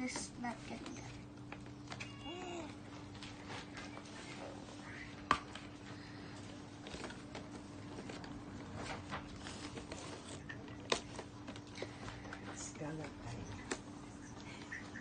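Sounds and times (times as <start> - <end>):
cardboard packaging rustling: 5.5 - 13.8.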